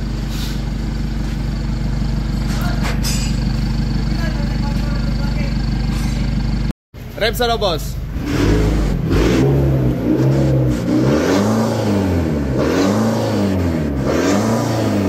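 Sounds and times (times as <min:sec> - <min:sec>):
truck engine revving: 0:07.8 - 0:15.0.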